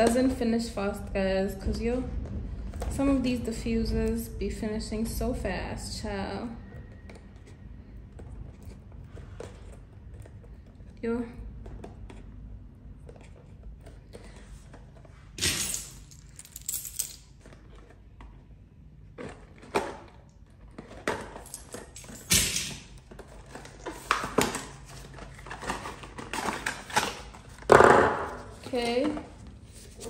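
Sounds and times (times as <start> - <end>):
cardboard and paper rustling: 22.9 - 27.7, 28.3 - 30.0.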